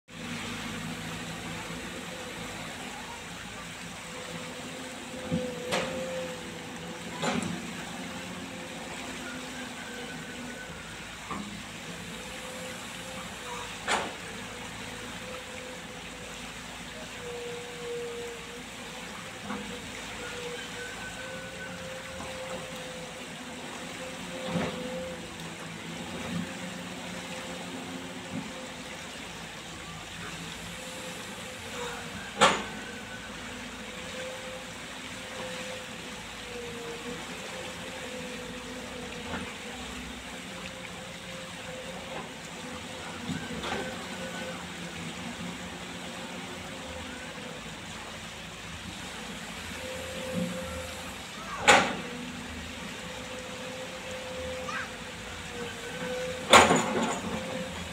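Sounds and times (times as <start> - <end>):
excavator engine drone: 0.1 - 57.9.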